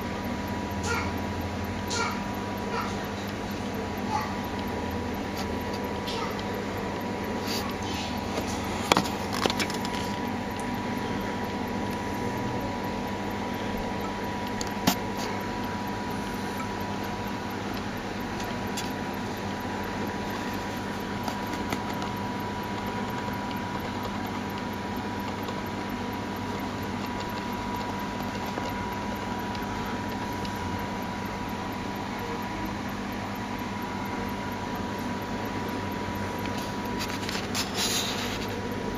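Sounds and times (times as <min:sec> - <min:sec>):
background hum and hiss: 0:00.0 - 0:38.9.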